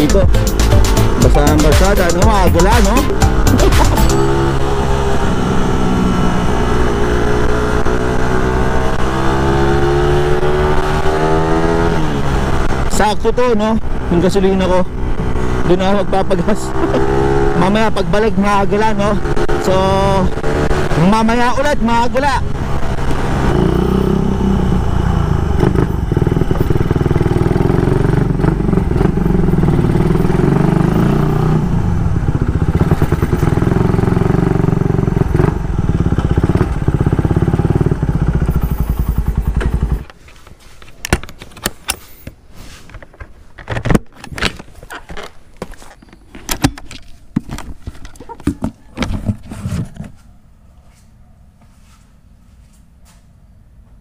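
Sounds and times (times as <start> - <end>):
motorcycle engine running: 0.0 - 13.0, 22.3 - 40.2.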